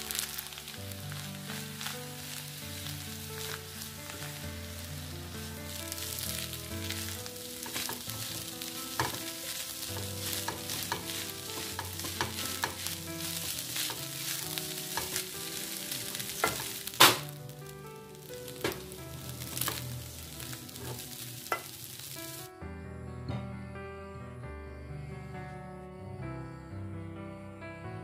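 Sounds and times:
rice sizzling in a pan: 0:00.0 - 0:22.5
spatula scraping and knocking pan: 0:05.9 - 0:17.3.

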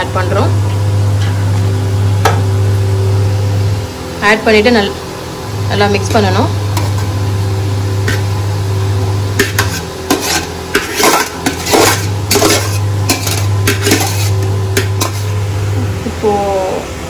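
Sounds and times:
low hum: 0:00.0 - 0:17.0
metal spoon scraping a pot: 0:09.4 - 0:15.3.

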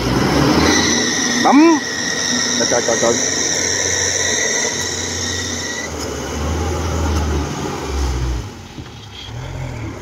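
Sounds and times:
high whine: 0:00.0 - 0:07.3
tracked cart engine under load: 0:00.0 - 0:10.0.

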